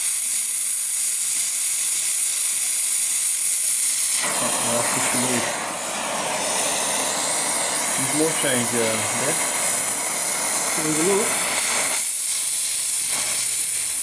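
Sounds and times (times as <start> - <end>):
welding torch hissing: 0.0 - 14.0.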